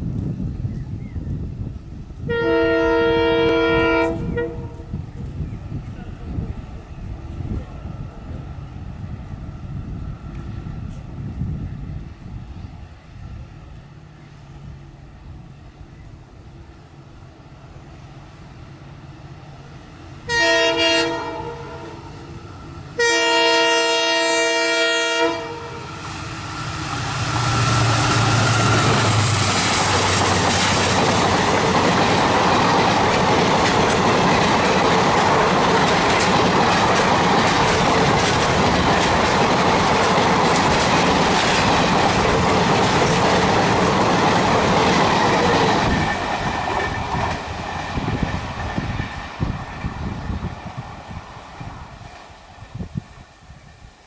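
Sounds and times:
diesel locomotive engine passing: 0:00.0 - 0:54.0
locomotive horn: 0:02.2 - 0:04.9, 0:20.3 - 0:22.2, 0:23.0 - 0:26.4
train wheels clacking on rail joints: 0:26.8 - 0:53.2.

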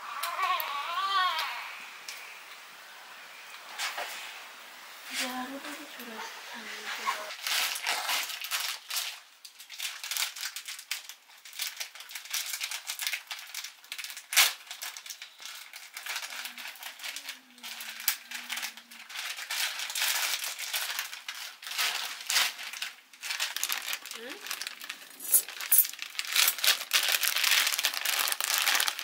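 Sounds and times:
plastic packets crinkling: 0:07.2 - 0:29.0.

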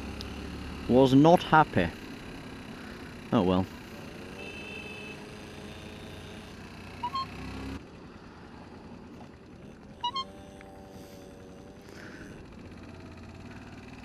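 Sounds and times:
motorcycle engine running: 0:00.0 - 0:14.0
two-note electronic beeps: 0:07.0 - 0:07.4, 0:10.0 - 0:10.4.

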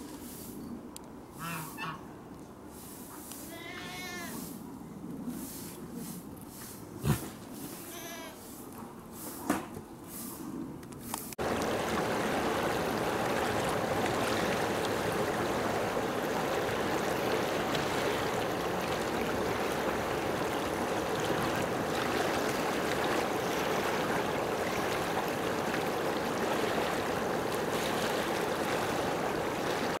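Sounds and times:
rushing water: 0:11.4 - 0:30.0.

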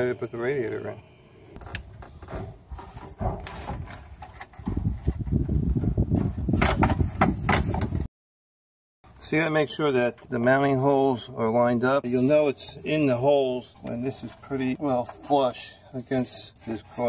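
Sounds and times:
radiator knocks clunks and scraping: 0:01.7 - 0:05.5.

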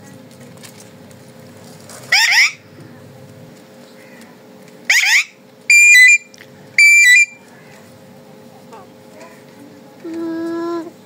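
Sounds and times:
parakeet squawking: 0:02.1 - 0:02.6, 0:04.9 - 0:06.2.

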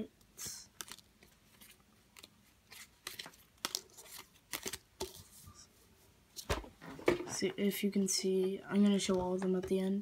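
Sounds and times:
cards rustling and flicking: 0:00.4 - 0:05.4.

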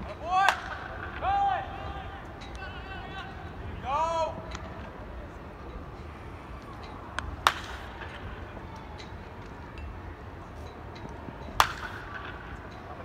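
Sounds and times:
baseball bat cracking ball: 0:00.4 - 0:01.3, 0:07.1 - 0:08.5, 0:11.5 - 0:12.8.

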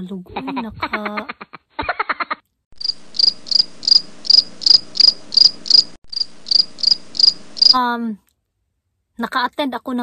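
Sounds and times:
cricket chirps: 0:02.8 - 0:07.8.

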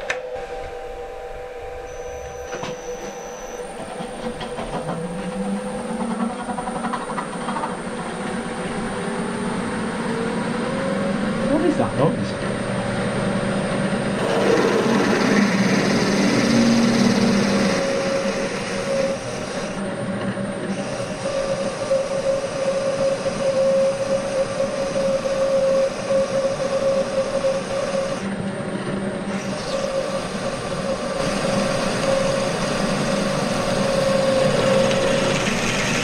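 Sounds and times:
constant high tone: 0:00.0 - 0:20.0, 0:29.2 - 0:36.0
milling machine cutting metal: 0:00.0 - 0:28.3, 0:29.0 - 0:36.0.

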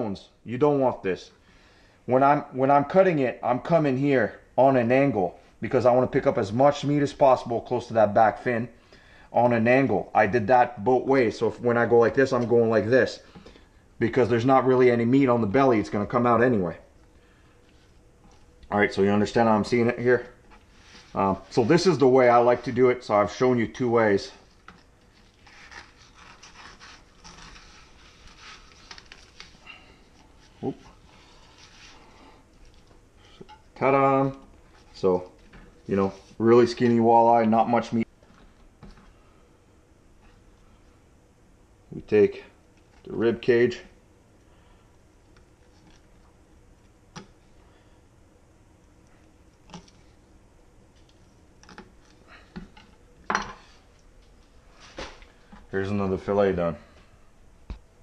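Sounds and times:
close breathing: 0:01.4 - 0:02.1, 0:08.8 - 0:09.3
knife scraping through fish: 0:25.3 - 0:28.8.

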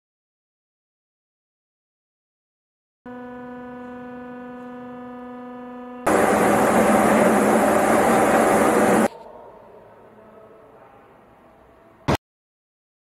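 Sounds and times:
steady even-pitched hum: 0:03.1 - 0:09.2
belt conveyor machinery noise: 0:06.0 - 0:09.1.

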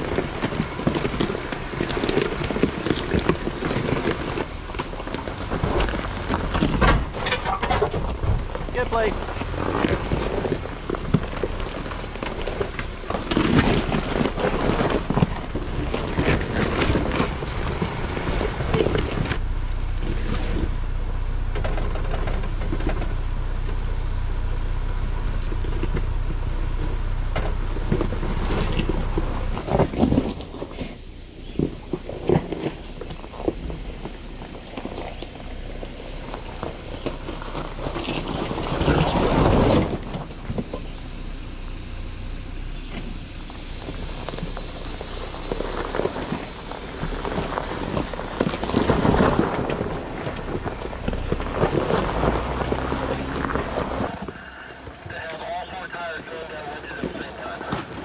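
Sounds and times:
engine running at low speed: 0:00.0 - 0:58.0
tyres crunching over rock: 0:00.0 - 0:58.0.

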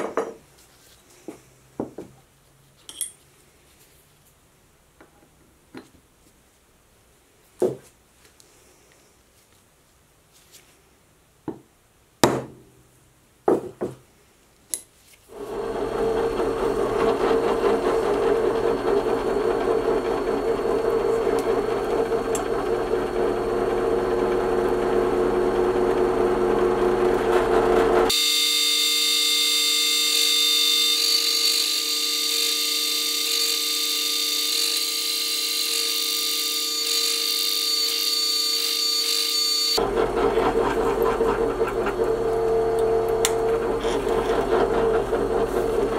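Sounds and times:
drill press drilling metal: 0:15.4 - 0:45.9.

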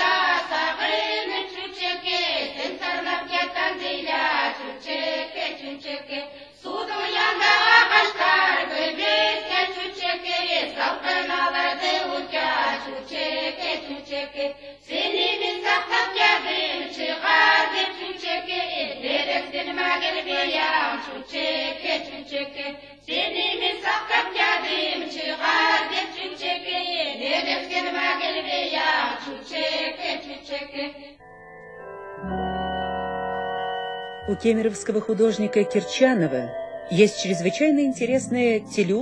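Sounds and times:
group singing folk song: 0:00.0 - 0:31.2
faint sustained ringing tones: 0:31.2 - 0:39.0.

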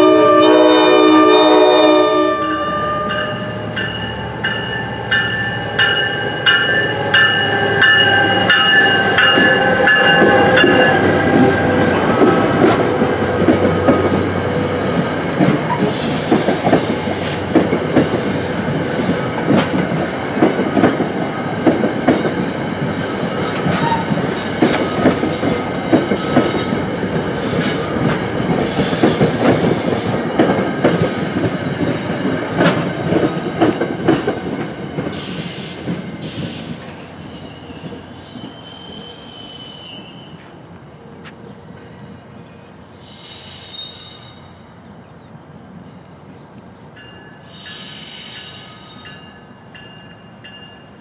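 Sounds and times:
train wheels clattering over rail joints: 0:12.1 - 0:37.1.

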